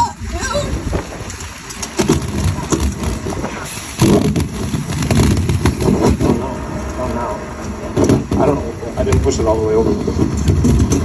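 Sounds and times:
engine rumbling: 0.0 - 11.0
metal knocks and clanks: 7.6 - 11.0.

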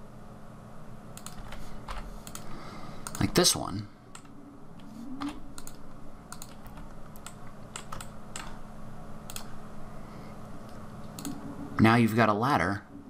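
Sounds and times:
faint low hum: 0.0 - 13.0
keyboard and mouse clicking: 1.2 - 3.3, 4.1 - 8.6, 9.3 - 9.6, 11.1 - 11.4.

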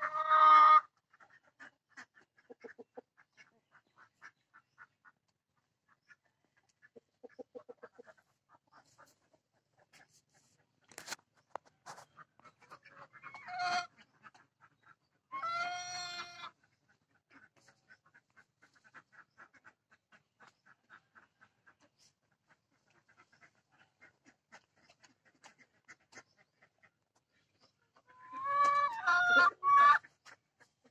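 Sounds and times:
hen drawn-out calls: 0.0 - 1.7, 12.3 - 19.8, 27.9 - 30.4
hen clucking: 0.0 - 30.9.

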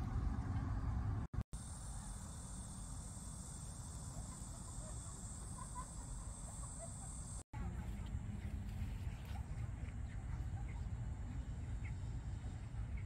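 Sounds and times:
low outdoor rumble: 0.0 - 5.6, 6.2 - 13.0
insects buzzing: 1.6 - 7.4.

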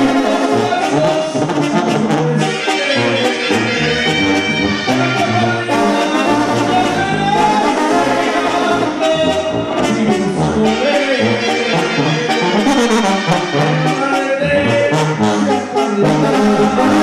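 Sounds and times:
brass band playing: 0.0 - 17.0.

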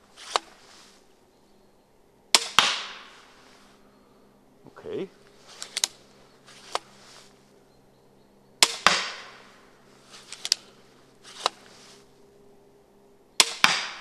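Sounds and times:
bolt hitting target: 2.3 - 3.1, 8.6 - 9.5, 13.4 - 14.0
crossbow string snapping: 5.6 - 6.0, 10.2 - 10.7.

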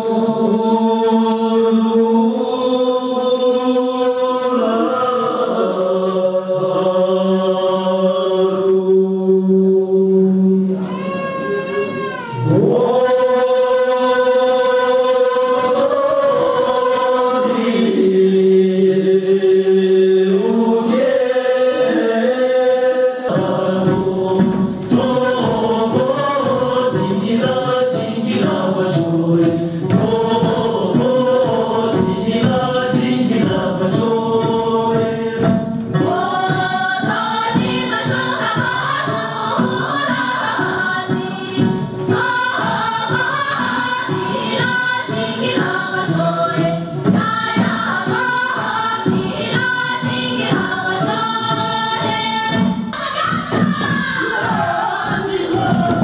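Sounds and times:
group of men and women singing: 0.0 - 56.0.

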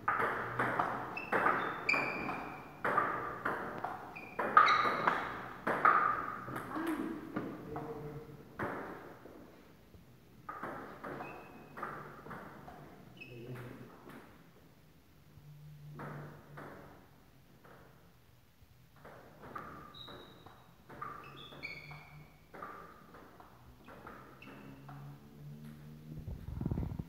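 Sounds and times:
table tennis ball hits: 0.0 - 7.9, 8.6 - 9.3, 10.4 - 13.0, 19.0 - 25.8.

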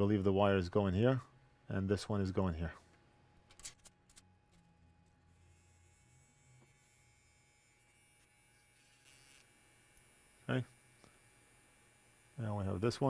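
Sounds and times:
faint low electrical hum: 0.0 - 13.0.

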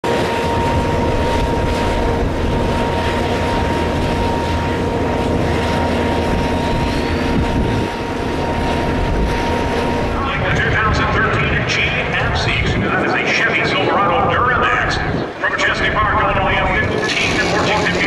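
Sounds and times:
constant whine: 0.0 - 18.0
diesel truck engines idling: 2.0 - 18.0.

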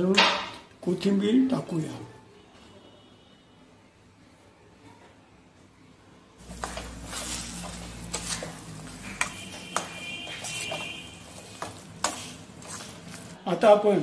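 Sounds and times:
spoon stirring thick mash in pot: 6.4 - 13.8.

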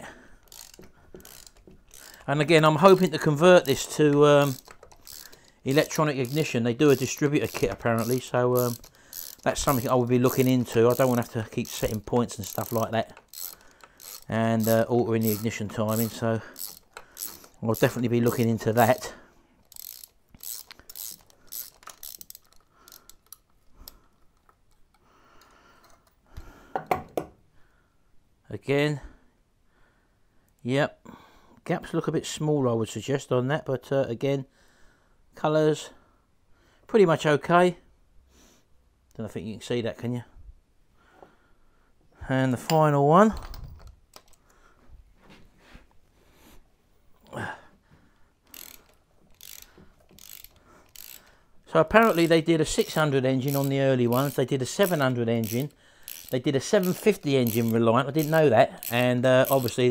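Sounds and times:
ratchet wrench clicking: 0.4 - 23.5, 48.5 - 59.9
metallic clicks and clinks: 0.4 - 26.2.

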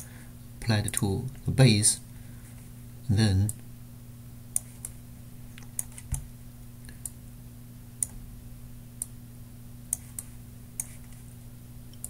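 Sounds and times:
low electrical hum: 0.0 - 12.0
computer mouse clicks: 4.6 - 5.0, 5.6 - 6.2, 9.9 - 11.2.

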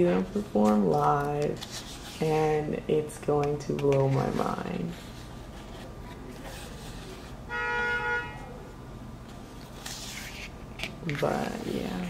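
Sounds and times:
short car horn honk: 7.5 - 8.5
page being turned: 9.6 - 10.6.

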